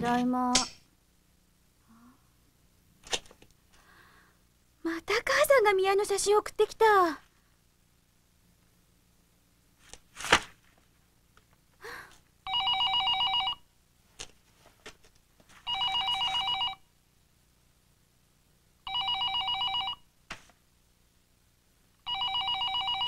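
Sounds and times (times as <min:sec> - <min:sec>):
sharp smack: 0:10.2 - 0:10.6
telephone trilling ring: 0:12.5 - 0:13.6, 0:15.7 - 0:16.8, 0:18.9 - 0:20.0, 0:22.0 - 0:23.0.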